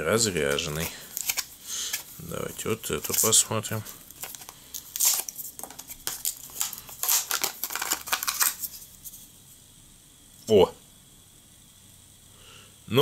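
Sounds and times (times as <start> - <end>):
plastic blister pack crackling: 0.4 - 8.8
cardboard tearing: 0.6 - 2.1, 4.1 - 8.7.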